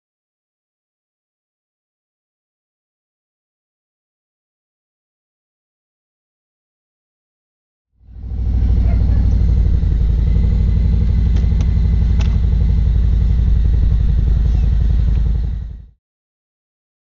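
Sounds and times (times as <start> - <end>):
motorcycle engine idling: 8.0 - 15.9.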